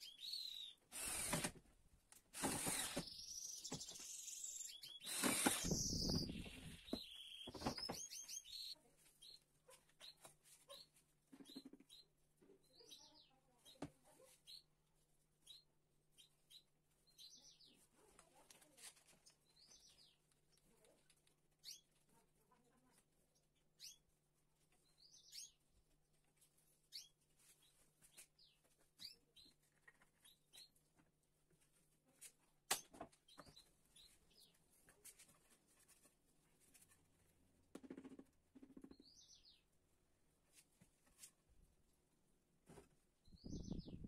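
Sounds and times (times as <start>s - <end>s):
faint bird chirps: 43.2s - 44.0s.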